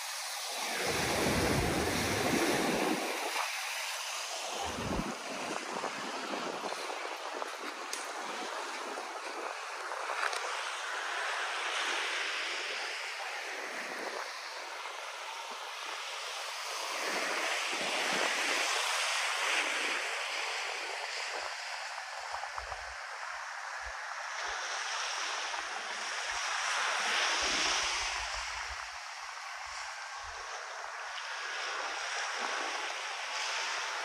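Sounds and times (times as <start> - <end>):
surf washing on beach: 0.0 - 34.0
wind buffeting microphone: 0.5 - 10.6.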